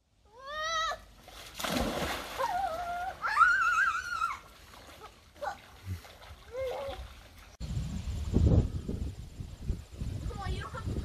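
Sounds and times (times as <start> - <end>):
water splash: 1.2 - 7.6.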